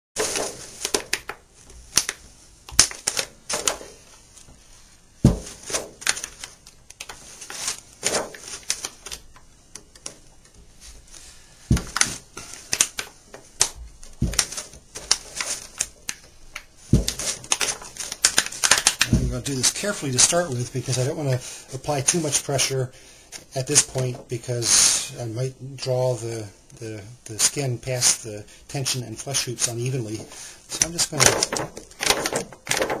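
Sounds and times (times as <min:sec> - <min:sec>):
heavier knocks: 0:05.2 - 0:05.6.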